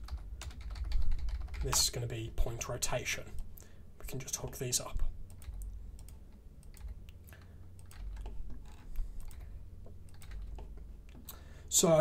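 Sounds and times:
low steady hum: 0:00.0 - 0:12.0
keyboard and mouse clicks: 0:05.3 - 0:11.4.

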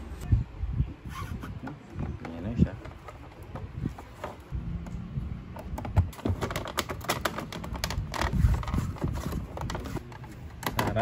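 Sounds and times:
hard plastic clicks and knocks: 0:10.5 - 0:11.0.

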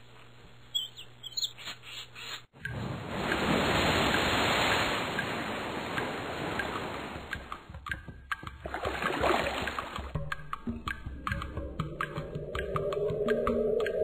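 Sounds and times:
stormy wind and sea rushing: 0:02.6 - 0:07.6, 0:11.2 - 0:14.0.

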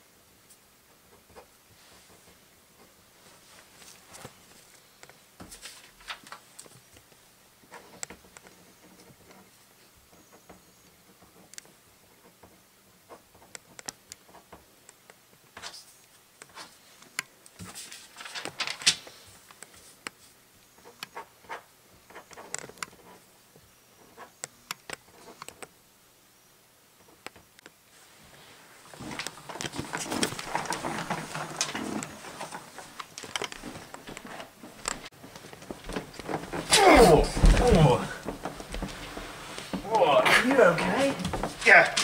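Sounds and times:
paper rustling and shuffling: 0:01.2 - 0:10.4, 0:15.6 - 0:23.3, 0:27.9 - 0:42.0.

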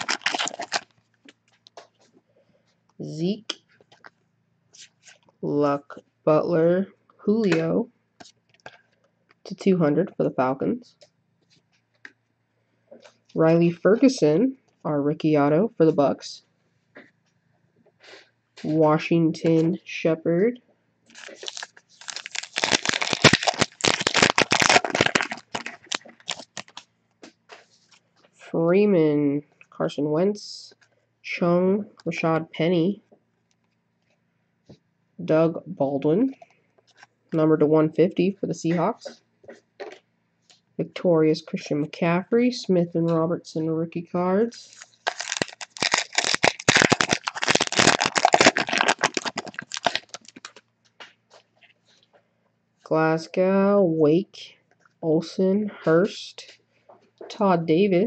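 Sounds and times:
card pack wrapper crinkling: 0:00.0 - 0:01.0, 0:21.1 - 0:26.9, 0:44.6 - 0:50.6.

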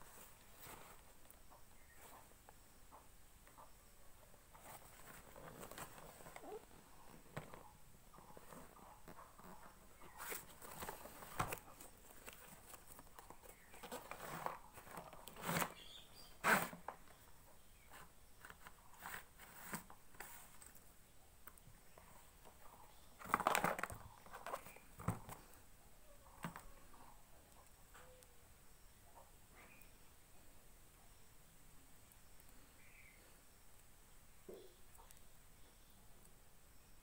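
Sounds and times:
cardboard and plastic rustling: 0:00.0 - 0:01.4, 0:04.6 - 0:17.2, 0:17.9 - 0:20.8, 0:23.2 - 0:25.6.

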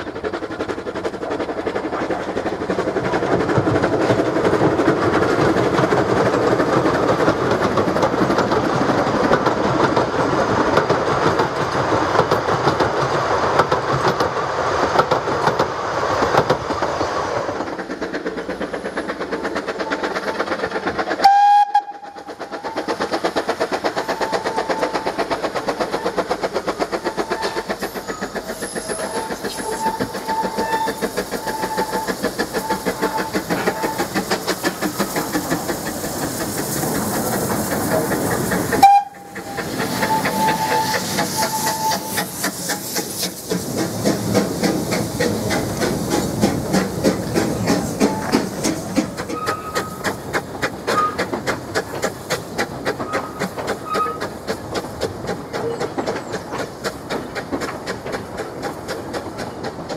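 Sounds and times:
steam locomotive chuffing: 0:00.0 - 0:59.9
carriages clattering over bridge: 0:17.4 - 0:59.9
steam whistle: 0:21.2 - 0:22.2, 0:38.8 - 0:42.2.

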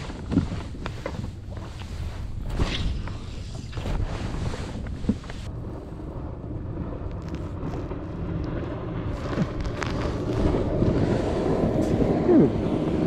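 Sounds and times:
wind buffeting microphone: 0:00.0 - 0:13.0
motorboat engine: 0:04.7 - 0:13.0.

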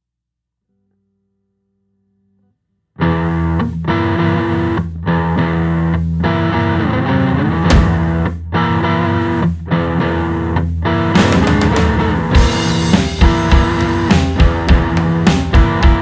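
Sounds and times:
distorted electric guitar chords: 0:03.0 - 0:16.0
rock drum hits: 0:07.6 - 0:08.3, 0:11.2 - 0:16.0.

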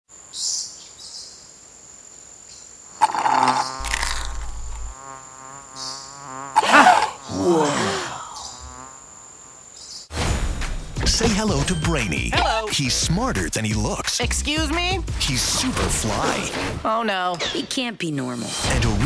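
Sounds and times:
insects chirping: 0:00.1 - 0:10.1.

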